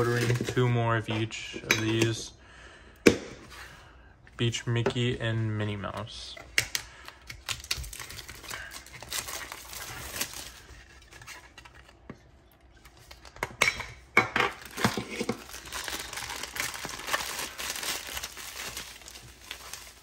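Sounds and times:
plastic bag crinkling: 7.6 - 11.6, 14.5 - 20.0.

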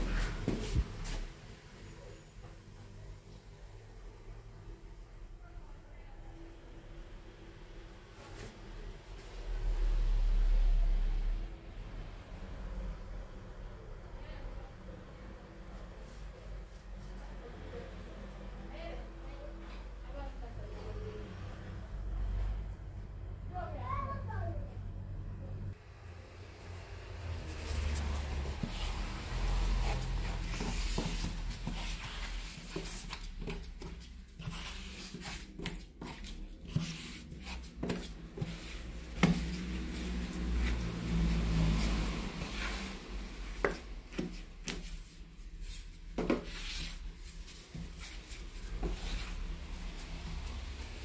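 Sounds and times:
trowel scraping grout: 27.5 - 43.0.

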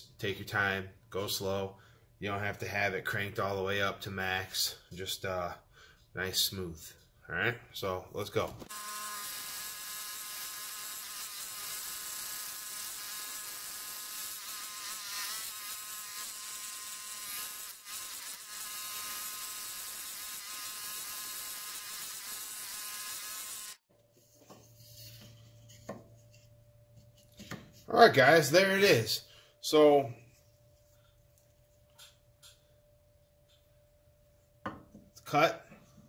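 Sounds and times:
scroll saw cutting wood: 8.7 - 23.9.

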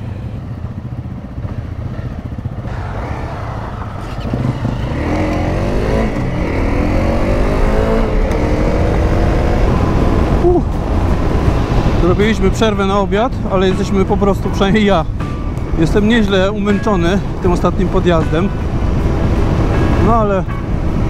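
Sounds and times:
motorcycle engine accelerating: 0.0 - 12.0.

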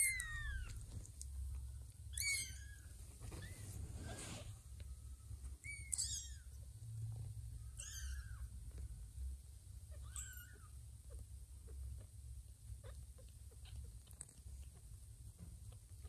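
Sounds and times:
kittens mewing: 9.9 - 12.1.

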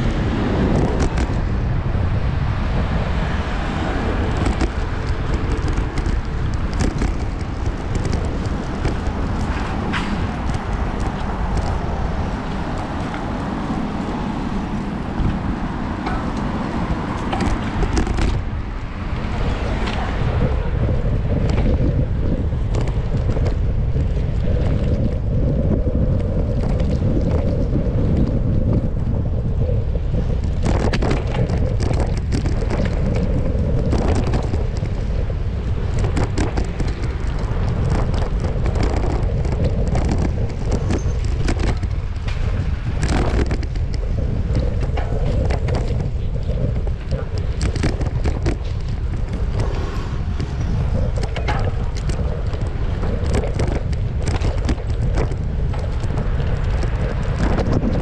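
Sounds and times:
wind buffeting microphone: 0.0 - 58.0
clicks and rattles: 4.3 - 11.8.

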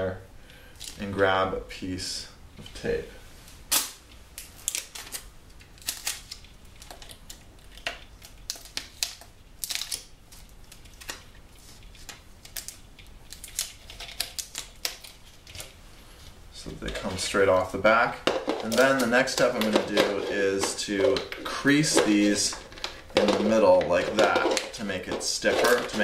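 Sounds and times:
thin plastic crackling and clicking: 4.1 - 15.8, 16.7 - 26.0.

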